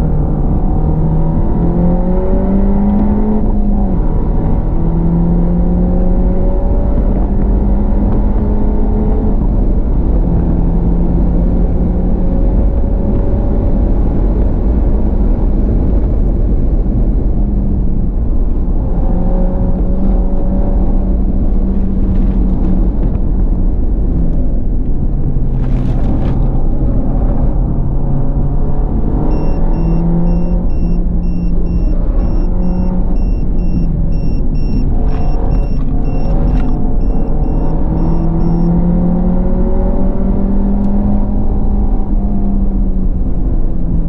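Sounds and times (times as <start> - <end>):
road and wind rumble: 0.0 - 44.0
car engine revving: 25.5 - 42.4
repeating electronic beep: 29.2 - 38.8.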